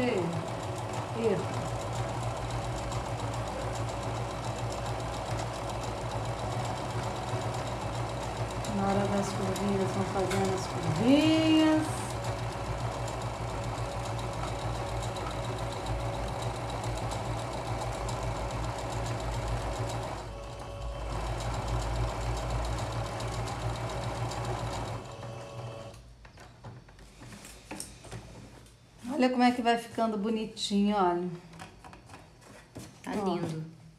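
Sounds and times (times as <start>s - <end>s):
electric sewing machine running: 0.0s - 26.0s.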